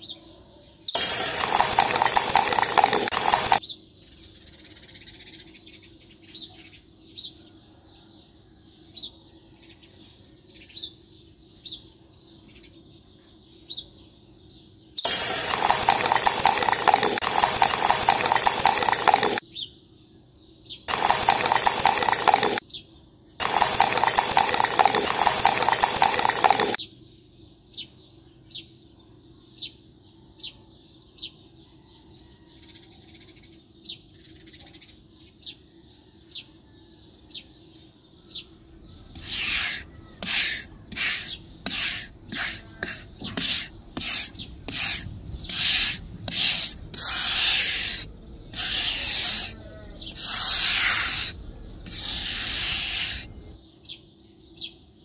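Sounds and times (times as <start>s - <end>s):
rasping scraping strokes: 39.2s - 49.6s.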